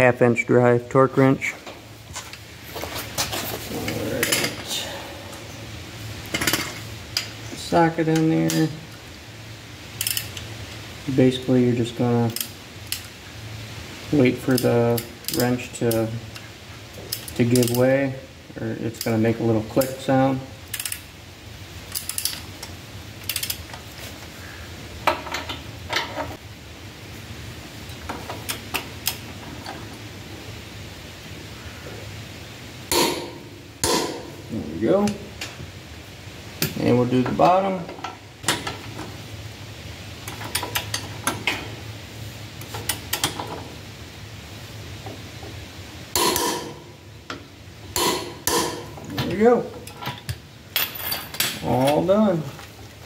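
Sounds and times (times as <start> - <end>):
socket wrench ratcheting: 10.0 - 10.4, 20.7 - 21.0, 21.9 - 22.4, 23.3 - 23.6.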